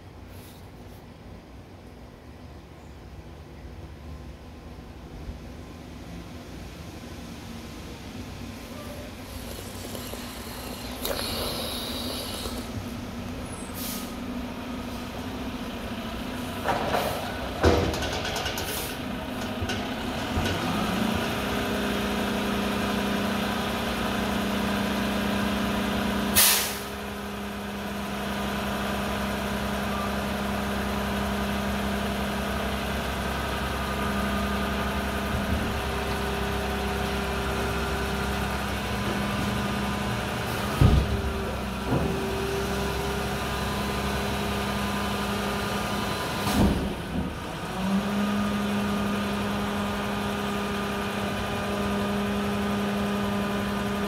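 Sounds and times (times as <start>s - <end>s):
diesel truck engine idling: 1.1s - 17.8s, 18.6s - 54.0s
air hiss: 9.1s - 14.3s, 26.4s - 26.9s.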